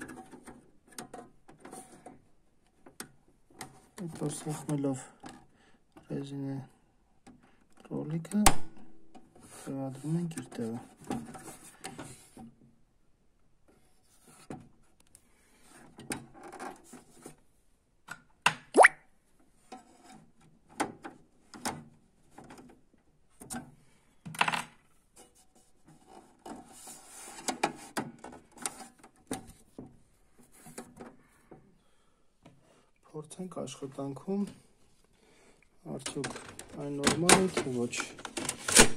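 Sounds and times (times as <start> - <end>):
rubbing and handling noise: 35.9 - 38.9
plastic clicks and knocks: 36.0 - 38.9.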